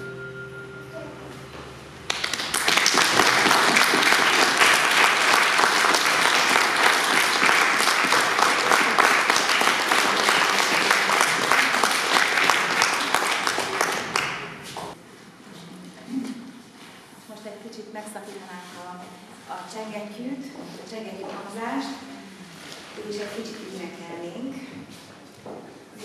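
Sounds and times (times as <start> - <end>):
audience applauding: 2.1 - 15.0.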